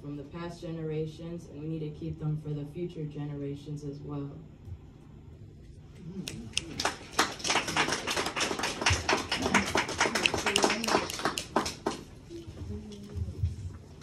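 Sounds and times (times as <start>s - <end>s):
small audience clapping: 6.2s - 12.4s.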